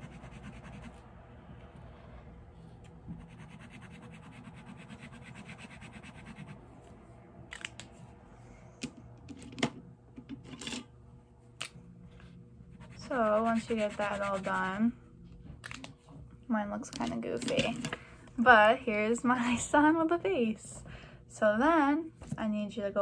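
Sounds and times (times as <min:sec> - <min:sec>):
pencil scratching on paper: 0:00.0 - 0:01.0, 0:03.1 - 0:06.6, 0:12.7 - 0:14.6.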